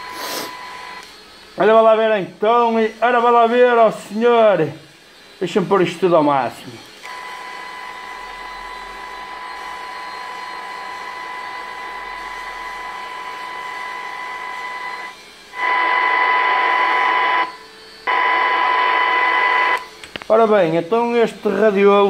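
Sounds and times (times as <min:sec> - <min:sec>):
radio high whistle: 0:00.0 - 0:04.4, 0:07.0 - 0:20.0
radio hiss: 0:00.0 - 0:22.0.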